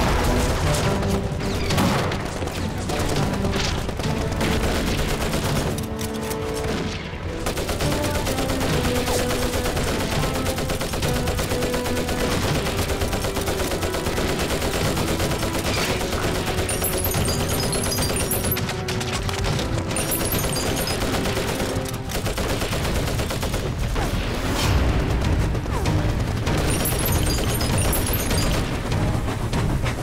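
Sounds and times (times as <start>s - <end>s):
rifle shots: 3.1s - 19.4s
machine-gun bursts: 7.4s - 23.7s, 26.6s - 28.6s.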